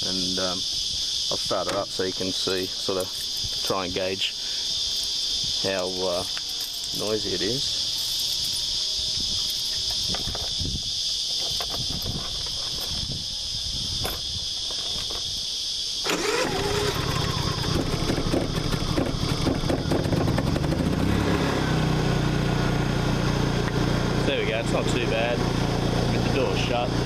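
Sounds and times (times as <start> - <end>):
crickets chirping: 0.0 - 27.0
generator engine running: 16.1 - 27.0.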